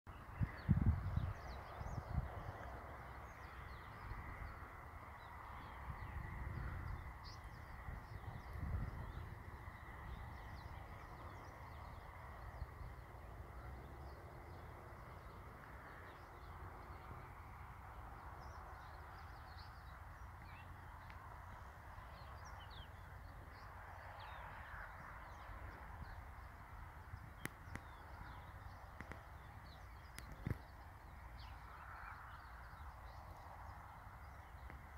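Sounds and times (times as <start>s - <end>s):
birds chirping: 0.1s - 34.9s
wind rumble on microphone: 0.1s - 34.9s.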